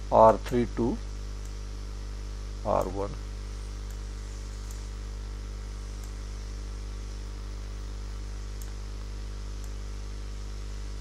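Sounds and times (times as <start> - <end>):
electrical mains hum: 0.0 - 11.0
microphone line hiss: 0.0 - 11.0
faint ticks: 1.4 - 1.6, 3.7 - 4.9, 6.0 - 6.2, 8.5 - 9.8.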